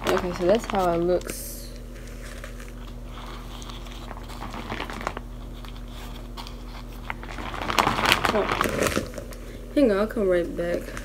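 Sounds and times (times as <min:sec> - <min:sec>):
paper wrapper crinkling: 0:00.0 - 0:09.6
steady low hum: 0:00.0 - 0:11.0.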